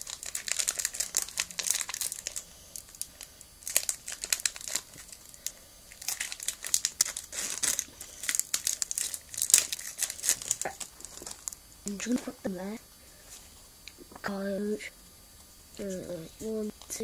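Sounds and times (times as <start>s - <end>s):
foil wrapper crinkling: 0.0s - 12.2s.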